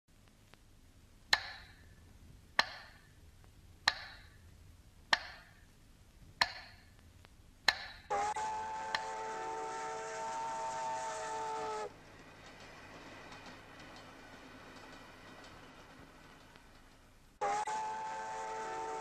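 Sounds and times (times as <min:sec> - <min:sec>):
sharp percussive knocks: 0:01.3 - 0:01.8, 0:02.6 - 0:03.0, 0:03.9 - 0:04.3, 0:05.1 - 0:05.6, 0:06.4 - 0:06.9.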